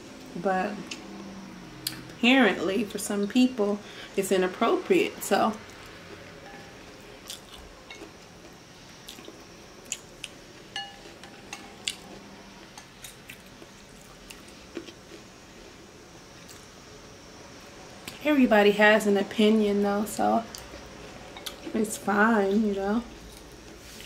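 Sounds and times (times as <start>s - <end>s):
person chewing noodles: 7.0s - 10.4s
chopsticks tapping glass bowl: 10.8s - 11.1s.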